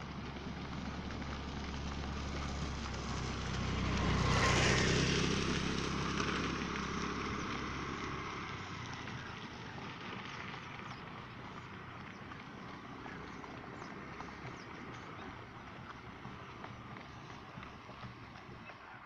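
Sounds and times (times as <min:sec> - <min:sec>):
flock of birds taking off: 0:00.0 - 0:19.0.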